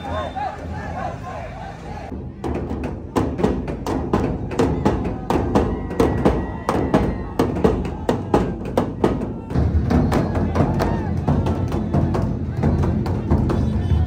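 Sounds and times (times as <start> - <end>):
bass drums beaten fast: 2.1 - 14.0.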